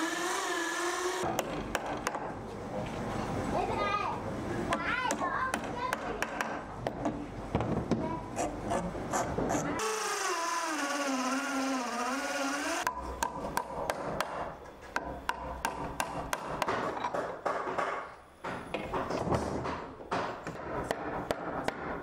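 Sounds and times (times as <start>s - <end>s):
electric drill boring into wood: 0.0s - 1.2s, 9.8s - 12.9s.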